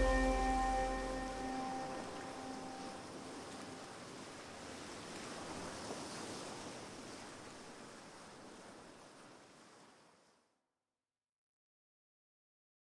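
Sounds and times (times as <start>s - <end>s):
rushing surf-like noise: 0.0s - 3.8s.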